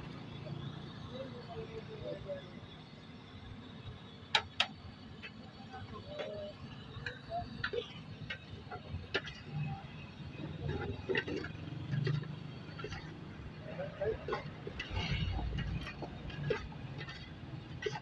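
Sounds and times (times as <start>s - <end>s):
metal cookware clicks and clatters: 7.6s - 18.0s.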